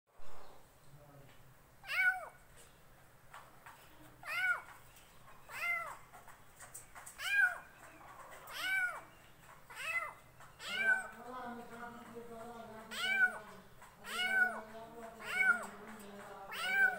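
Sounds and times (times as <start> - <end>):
kitten meowing: 1.8 - 2.4, 4.2 - 4.7, 5.5 - 6.0, 7.2 - 7.6, 8.5 - 9.1, 9.7 - 11.2, 12.9 - 13.4, 14.0 - 14.6, 15.2 - 15.7, 16.5 - 16.9.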